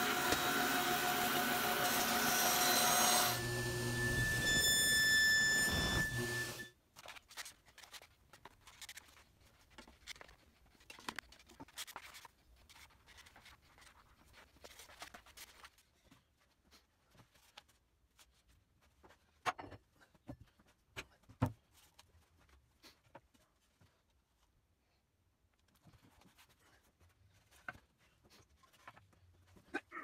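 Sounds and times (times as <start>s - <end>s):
band saw running: 0.0s - 6.7s.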